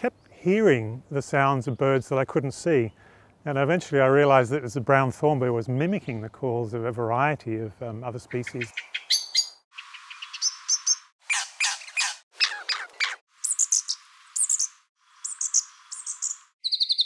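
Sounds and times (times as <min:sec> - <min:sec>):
bird alarm calls: 0:08.6 - 0:17.0.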